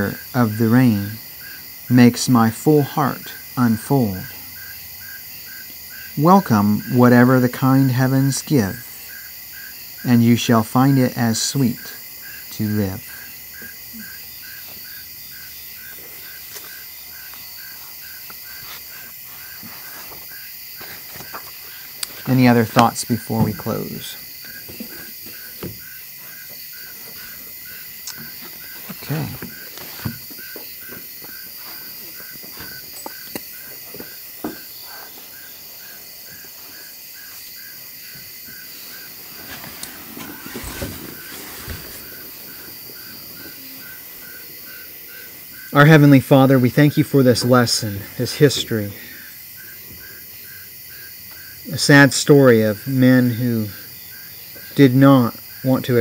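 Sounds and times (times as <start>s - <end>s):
crickets chirping: 0.0s - 56.0s
high insect trill: 0.0s - 56.0s
rustling: 15.8s - 45.2s.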